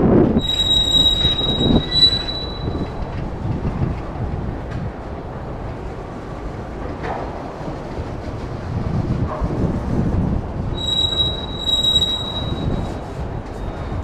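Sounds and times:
train rolling rumble: 0.0s - 14.0s
metallic wheel squeal: 0.4s - 3.2s, 10.8s - 14.0s.

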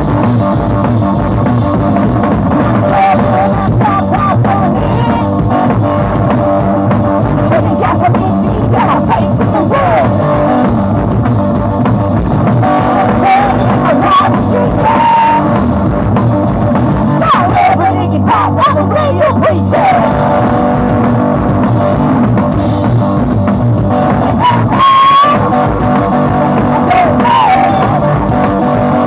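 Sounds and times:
drum kit: 0.0s - 29.0s
electric guitar: 0.0s - 29.0s
person singing: 2.6s - 10.7s, 12.6s - 15.7s, 17.1s - 21.2s, 23.9s - 29.0s.

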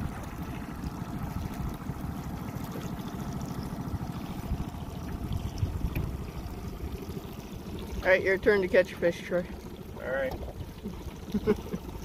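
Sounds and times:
outboard motor running: 0.0s - 12.0s
water rushing past hull: 0.0s - 12.0s
wind buffeting microphone: 4.0s - 6.6s.

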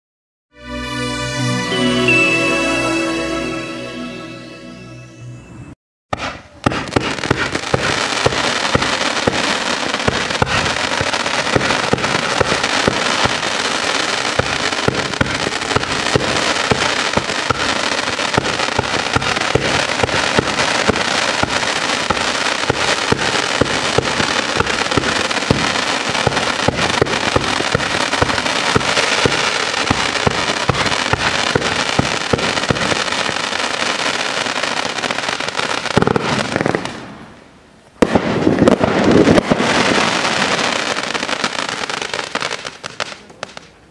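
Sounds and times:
firework cake firing shots: 6.1s - 13.5s
crackling firework stars: 6.1s - 43.9s.

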